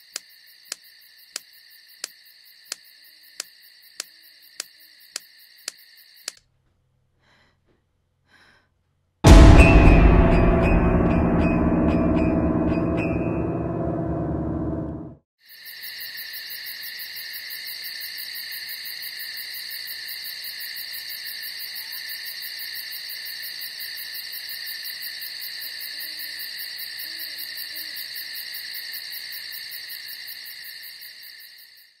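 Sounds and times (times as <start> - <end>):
insects chirring: 0.0 - 6.4, 15.4 - 32.0.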